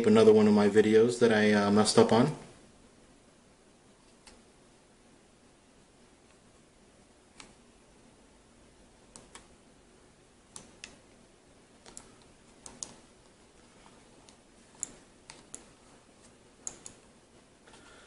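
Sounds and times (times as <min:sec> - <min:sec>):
faint plastic mouse clicks: 0:07.4 - 0:07.6.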